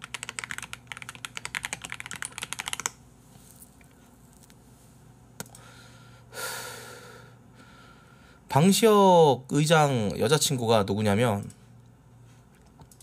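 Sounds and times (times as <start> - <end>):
fast typing on a keyboard: 0.0 - 3.0.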